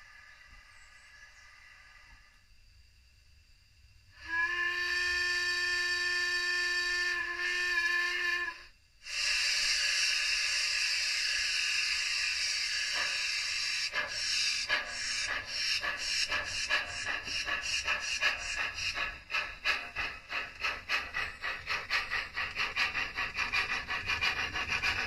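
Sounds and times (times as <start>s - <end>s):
steam hissing: 0.0s - 2.4s, 4.2s - 25.0s
steam locomotive whistle: 4.2s - 21.2s
locomotive exhaust chuffs: 4.2s - 25.0s.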